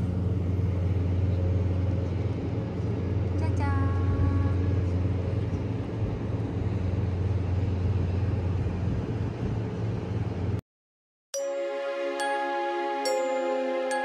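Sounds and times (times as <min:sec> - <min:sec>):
moving vehicle hum and rushing: 0:00.0 - 0:10.6.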